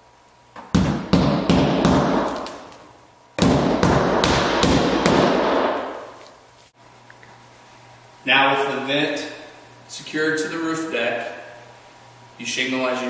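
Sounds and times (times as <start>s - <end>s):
hammer driving nails: 0.6s - 2.8s, 3.4s - 6.1s.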